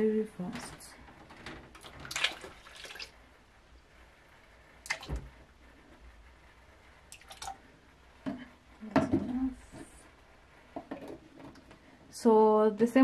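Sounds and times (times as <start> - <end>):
liquid pouring and splashing: 1.7 - 3.2, 4.8 - 5.3, 7.1 - 7.6.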